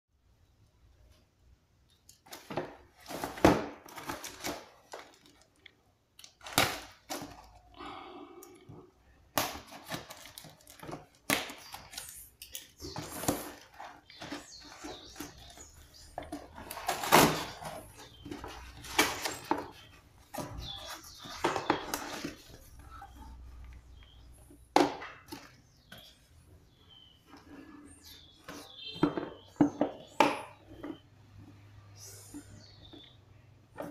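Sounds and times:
packing tape tearing: 6.2s - 7.5s.

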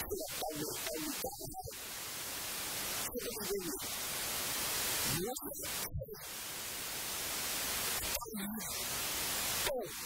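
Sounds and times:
man talking into a microphone: 0.0s - 1.8s, 3.1s - 3.8s
loud static hiss: 0.0s - 10.0s.

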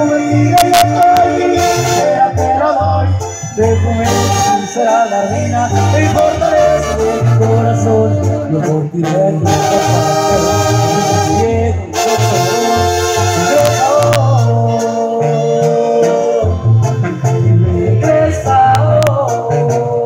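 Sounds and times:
live band music over loudspeakers: 0.0s - 20.0s
pulsing bass line: 0.0s - 20.0s.

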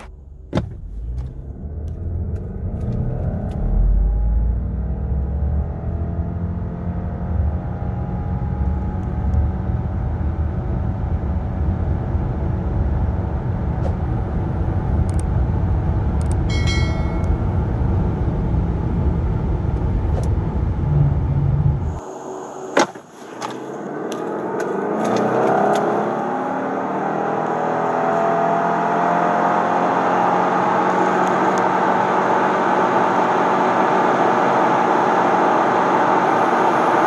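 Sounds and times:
car engine accelerating: 0.0s - 22.7s, 23.4s - 37.0s
road rumble: 0.0s - 37.0s
brief high tone: 16.5s - 17.6s.

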